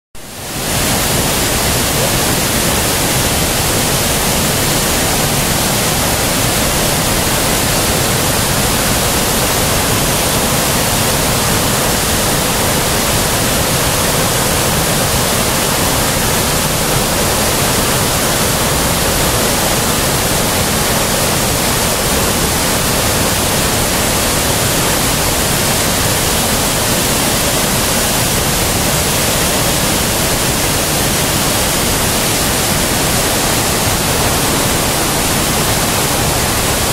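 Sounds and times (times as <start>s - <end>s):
waterfall rushing over rocks: 0.2s - 36.9s.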